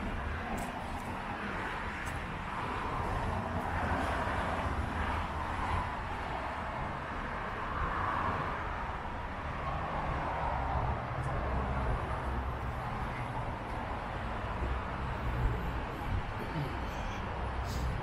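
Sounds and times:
cars passing: 0:00.0 - 0:18.0.

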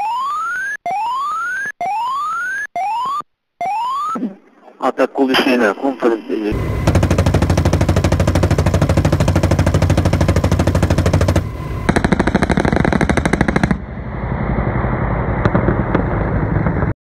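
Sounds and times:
automatic gunfire: 0:06.8 - 0:13.8.

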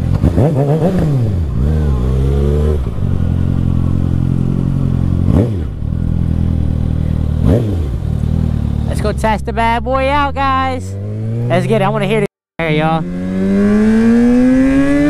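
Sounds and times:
motorcycle idling: 0:01.3 - 0:11.6.

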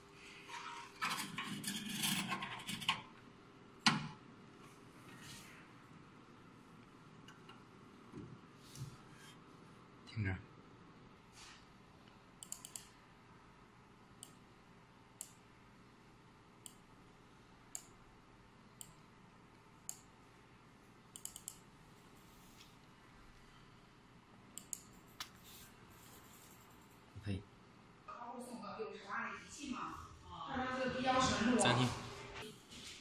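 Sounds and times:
computer mouse clicks: 0:12.4 - 0:13.0, 0:14.2 - 0:14.4, 0:15.2 - 0:15.4, 0:16.6 - 0:16.8, 0:17.7 - 0:18.0, 0:18.8 - 0:19.0, 0:21.1 - 0:21.7, 0:24.6 - 0:25.4.

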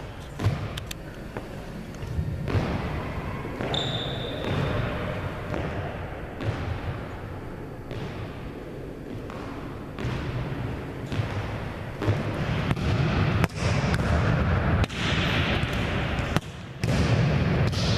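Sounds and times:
ball bouncing on wooden floor: 0:02.4 - 0:02.9, 0:09.1 - 0:14.2
shoe squeak: 0:03.6 - 0:05.0
volleyball smack: 0:11.1 - 0:17.9.

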